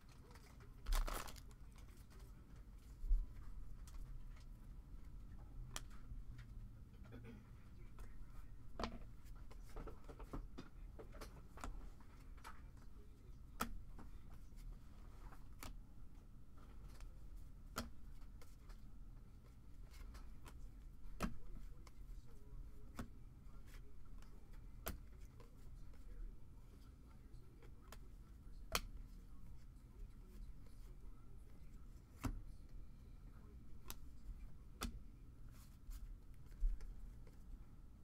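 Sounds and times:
low steady hum: 0.0s - 38.0s.

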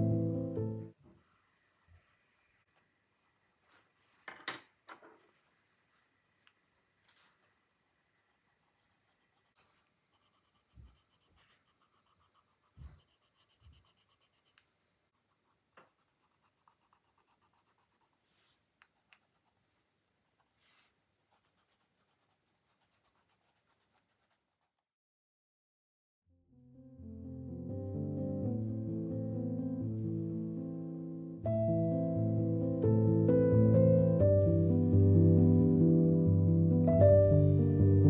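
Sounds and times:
pencil scratching on paper: 3.1s - 3.9s, 8.2s - 14.6s, 15.2s - 24.8s.

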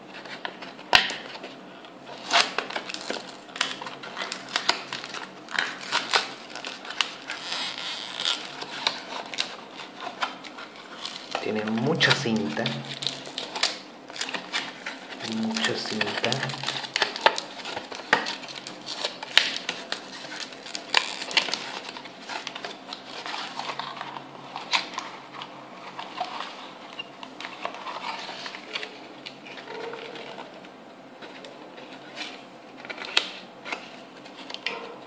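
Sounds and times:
rustling and scraping: 0.0s - 35.0s
cardboard packaging pulled open: 2.1s - 30.6s.

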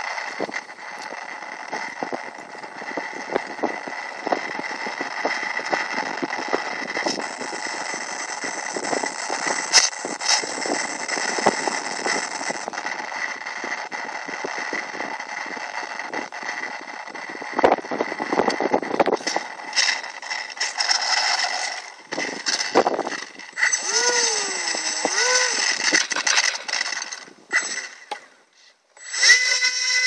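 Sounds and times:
rushing wind noise: 0.0s - 27.6s
model plane motor whining: 0.0s - 28.3s, 29.0s - 30.0s.

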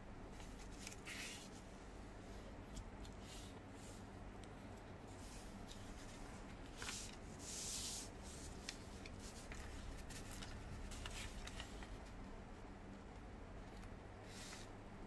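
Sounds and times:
paper crackling while folded: 0.4s - 1.6s, 5.2s - 12.2s
paper rustling: 0.4s - 1.6s, 5.2s - 12.2s.

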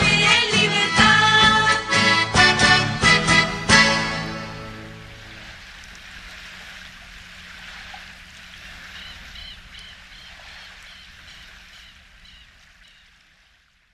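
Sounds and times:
low hum: 0.0s - 10.0s.

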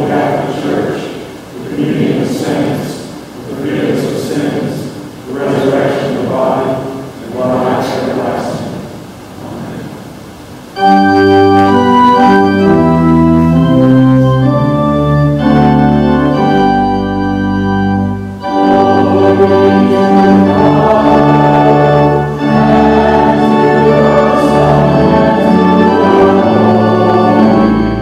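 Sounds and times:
church organ chords: 10.6s - 28.0s.

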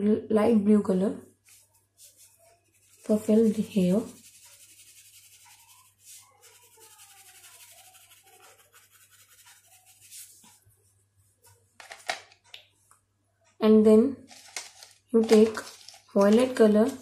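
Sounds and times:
crayon scratching on paper: 1.5s - 11.6s.

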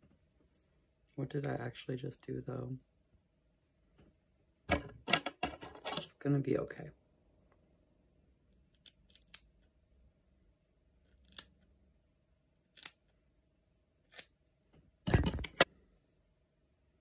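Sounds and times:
scissors snipping hair: 8.8s - 9.5s, 11.2s - 11.5s, 12.7s - 13.1s.

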